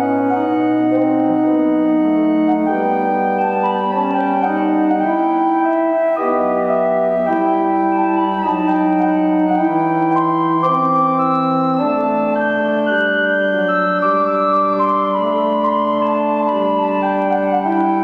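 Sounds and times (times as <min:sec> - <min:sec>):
organ chords: 0:00.0 - 0:18.0.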